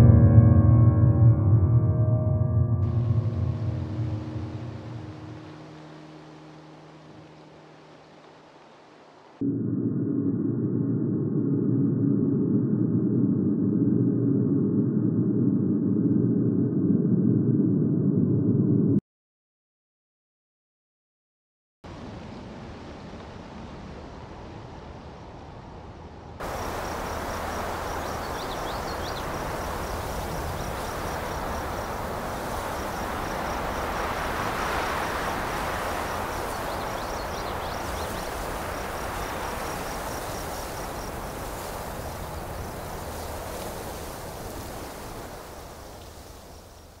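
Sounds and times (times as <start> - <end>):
steady rushing hiss: 3.0 - 9.4, 26.4 - 47.0
high-pitched insect trill: 26.4 - 43.5.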